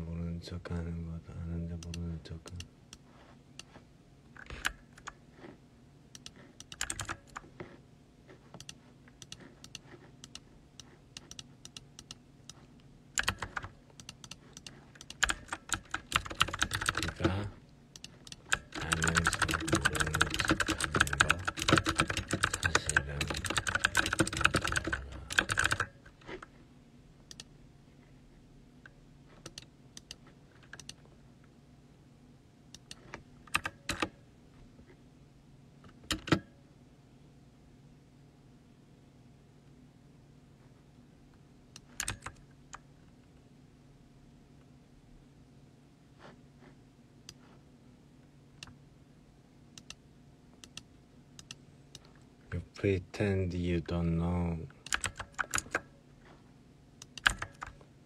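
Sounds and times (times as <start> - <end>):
typing on a keyboard: 6.2 - 7.4, 13.2 - 17.3, 18.0 - 25.9, 33.5 - 34.1, 41.9 - 42.4, 54.9 - 55.9, 57.1 - 57.8.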